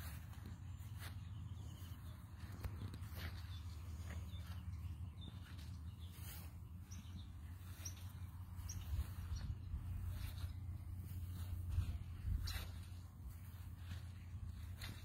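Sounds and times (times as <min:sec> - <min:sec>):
faint bird chirps: 0:00.0 - 0:15.0.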